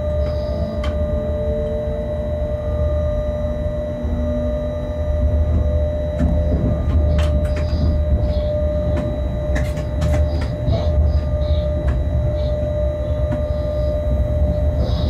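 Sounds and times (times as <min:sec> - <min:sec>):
constant whine: 0:00.0 - 0:15.0
locomotive low rumble: 0:00.0 - 0:15.0
wheels clicking on rails: 0:05.5 - 0:13.7.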